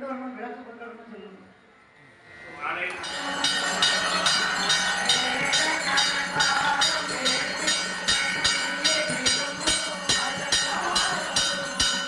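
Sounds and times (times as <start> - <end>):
held ringing tone: 2.9 - 12.0
ringing metallic strikes: 2.9 - 12.0.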